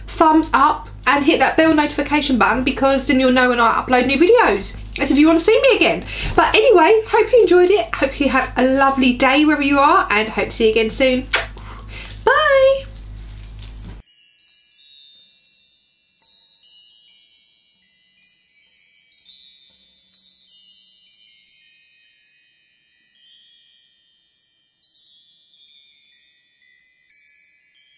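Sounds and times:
wind chimes tinkling: 11.6 - 27.9.

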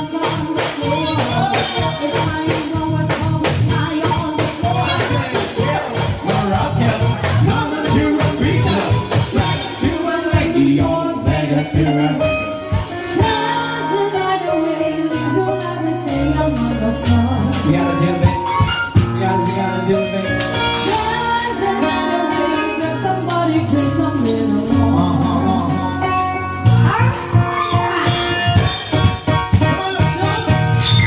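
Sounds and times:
live band keyboard music: 0.0 - 31.0
person singing: 0.0 - 31.0.

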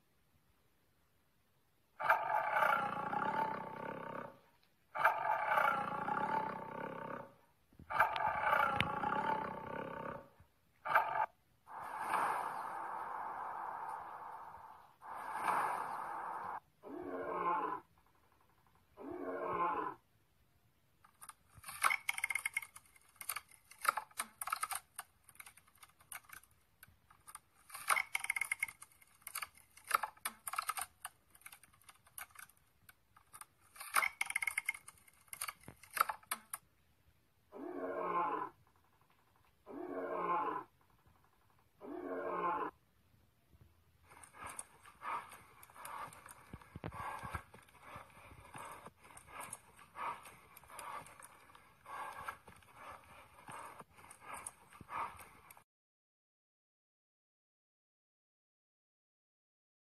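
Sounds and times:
rapid crackling clicks: 21.0 - 36.6, 44.1 - 55.6.

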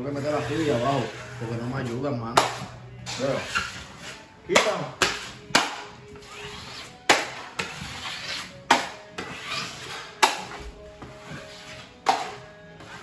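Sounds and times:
knife scraping joint compound: 6.2 - 10.6.

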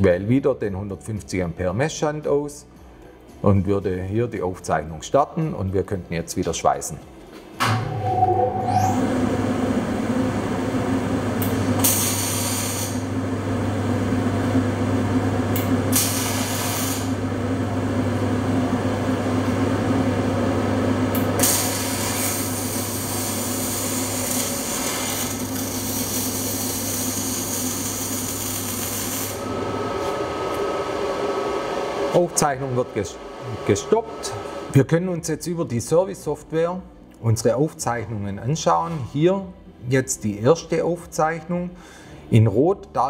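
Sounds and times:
welding arc crackling: 11.4 - 13.1, 15.5 - 17.2, 21.1 - 29.5
steady low hum: 12.5 - 38.6.

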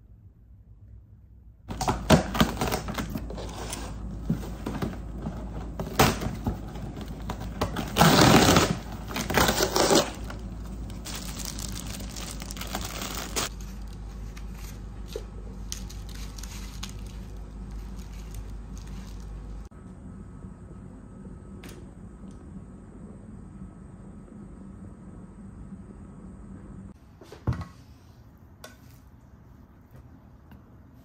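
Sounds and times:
cardboard rustling and crinkling: 1.7 - 19.7
packing tape tearing: 7.0 - 14.5, 15.7 - 19.3.

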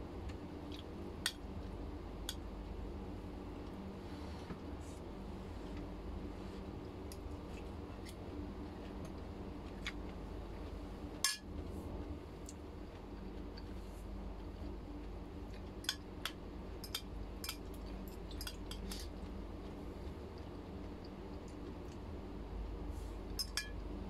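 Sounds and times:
steady low hum: 0.0 - 24.0
metal fork clinking on bowls: 18.3 - 19.0, 23.4 - 23.8.

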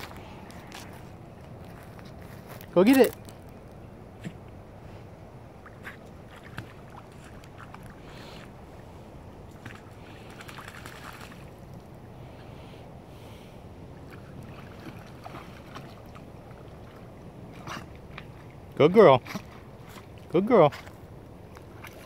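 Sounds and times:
dog splashing in water: 9.5 - 11.6.

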